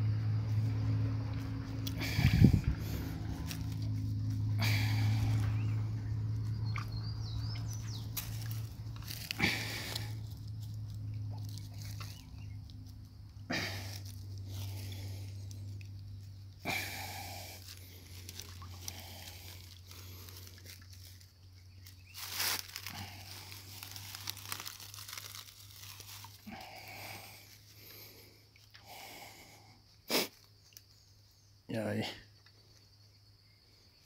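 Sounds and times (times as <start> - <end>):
steady low hum: 0.0 - 30.1
rustling and scraping: 1.4 - 16.6, 17.2 - 28.3.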